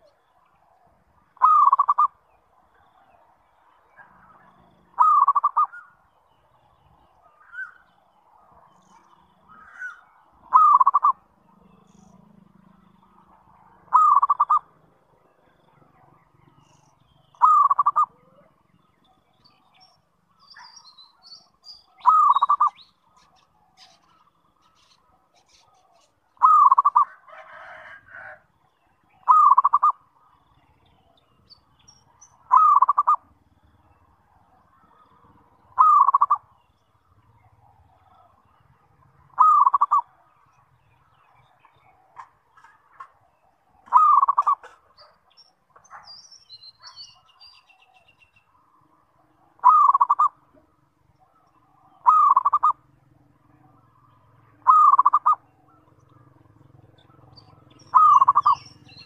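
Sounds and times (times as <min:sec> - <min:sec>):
dove cooing: 0:01.4 - 0:02.2, 0:04.2 - 0:05.9, 0:09.5 - 0:12.4, 0:13.3 - 0:14.8, 0:17.4 - 0:18.6, 0:22.0 - 0:24.2, 0:25.4 - 0:28.4, 0:29.2 - 0:30.0, 0:32.4 - 0:33.4, 0:34.9 - 0:36.5, 0:39.3 - 0:40.2, 0:43.8 - 0:45.2, 0:49.6 - 0:50.7, 0:52.0 - 0:52.8, 0:54.6 - 0:59.0.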